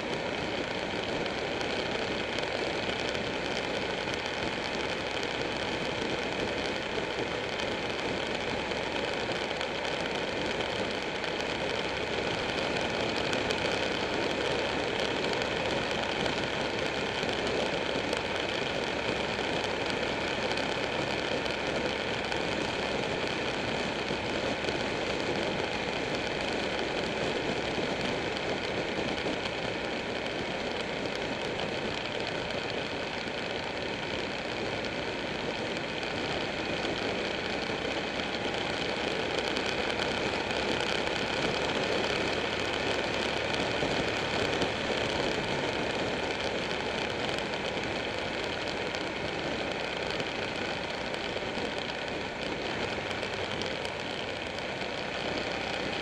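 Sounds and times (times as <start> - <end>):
motorcycle engine running: 0.0 - 56.0
road and wind noise: 0.0 - 56.0.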